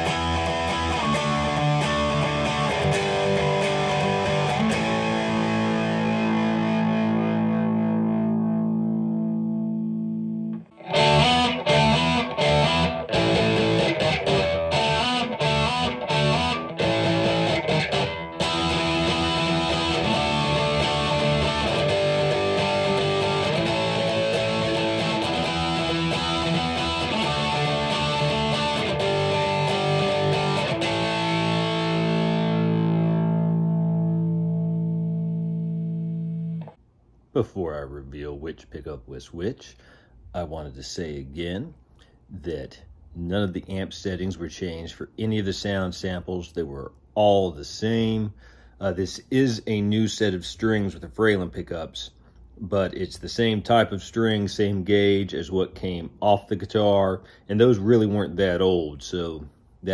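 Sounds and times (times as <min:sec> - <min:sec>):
distorted electric guitar chords: 0:00.0 - 0:36.8.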